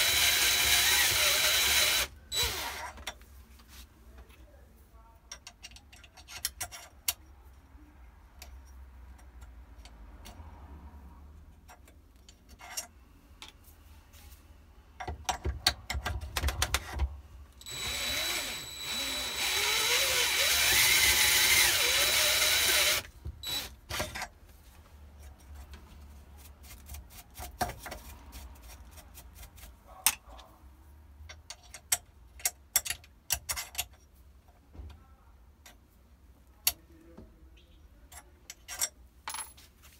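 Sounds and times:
cordless drill whining: 0:00.0 - 0:02.9, 0:17.6 - 0:23.7
metal clicks and knocks: 0:15.0 - 0:17.2, 0:31.2 - 0:34.1.

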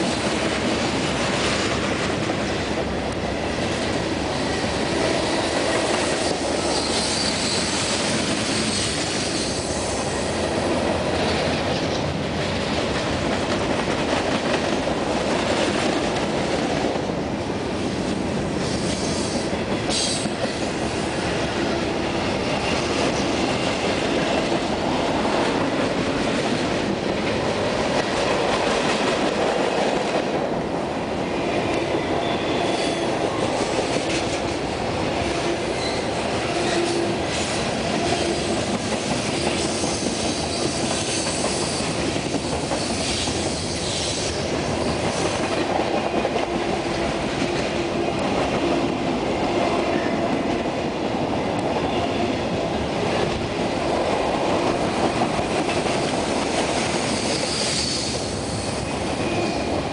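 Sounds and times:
freight train rolling past: 0:00.0 - 0:59.9.

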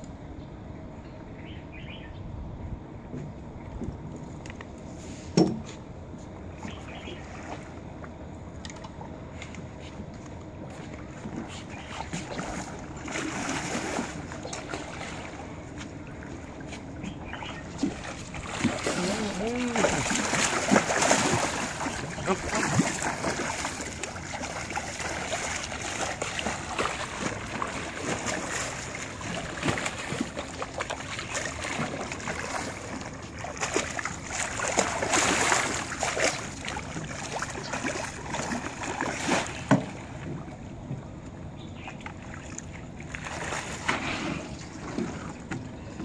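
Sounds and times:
water sloshing: 0:06.4 - 0:46.0
fish thrashing and splashing: 0:12.0 - 0:40.2.

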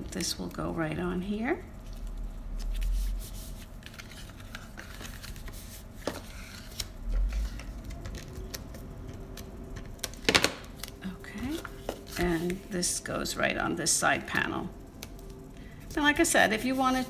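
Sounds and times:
paper rustling: 0:01.8 - 0:12.8, 0:14.3 - 0:17.0.

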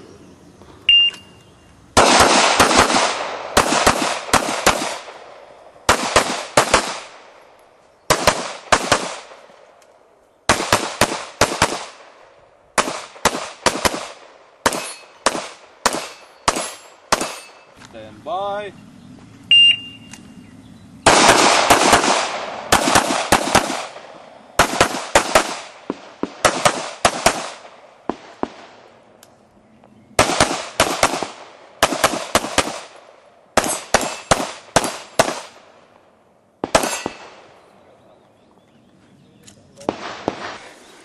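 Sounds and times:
rapid gunshots with echo: 0:02.0 - 0:07.3, 0:08.1 - 0:09.4, 0:21.1 - 0:28.8, 0:30.2 - 0:32.9, 0:36.6 - 0:37.5.

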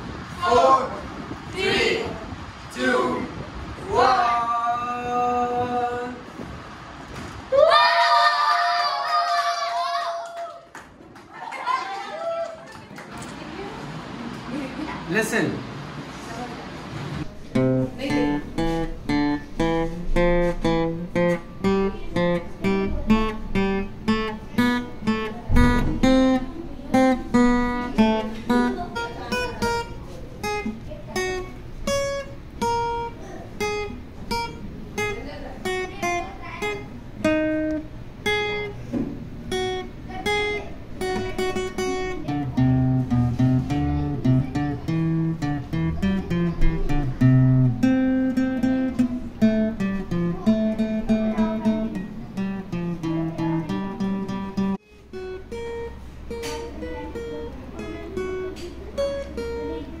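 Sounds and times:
acoustic guitar melody picked: 0:17.2 - 1:00.0
deep bass guitar notes: 0:17.6 - 0:29.1.

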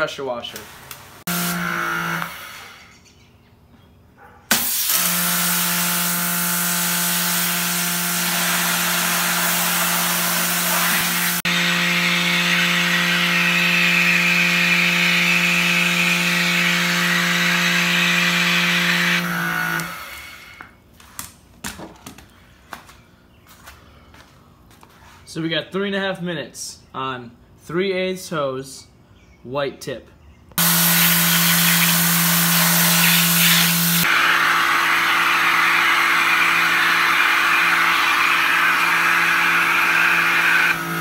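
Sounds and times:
pressure washer motor humming: 0:00.5 - 0:02.8, 0:04.5 - 0:20.4, 0:30.6 - 0:41.0
water jet hissing into bucket: 0:30.6 - 0:34.1.

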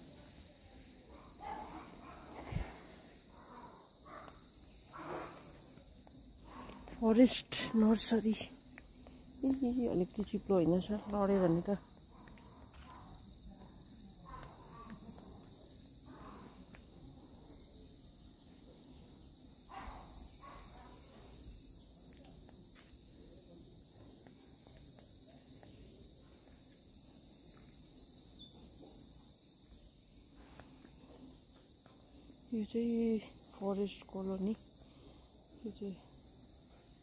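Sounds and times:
insects droning: 0:00.0 - 0:37.0
bird chirps: 0:26.6 - 0:29.9.

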